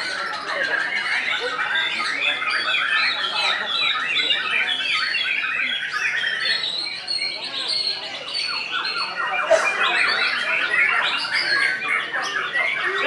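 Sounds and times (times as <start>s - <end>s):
bird singing varied notes: 0.0s - 13.0s.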